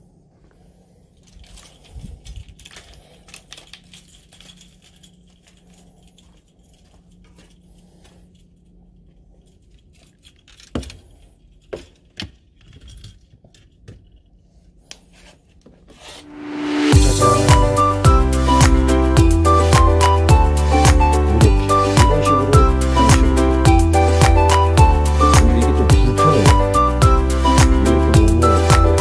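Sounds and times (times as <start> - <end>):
fishing rods clicking and rattling: 1.3 - 7.6
music: 16.3 - 29.0.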